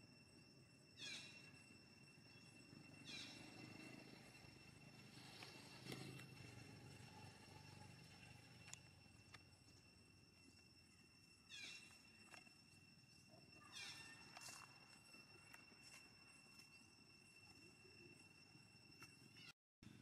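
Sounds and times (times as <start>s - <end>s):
faint steady high tone: 0.0s - 5.2s, 6.4s - 20.0s.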